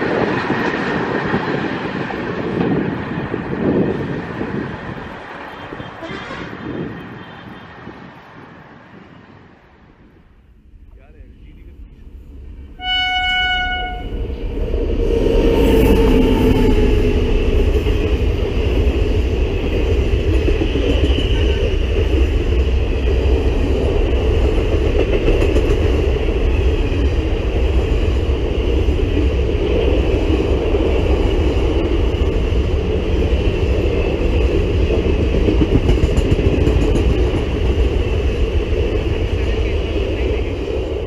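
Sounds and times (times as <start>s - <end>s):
train rumbling past: 0.0s - 41.0s
locomotive horn: 5.6s - 7.5s, 12.8s - 14.3s.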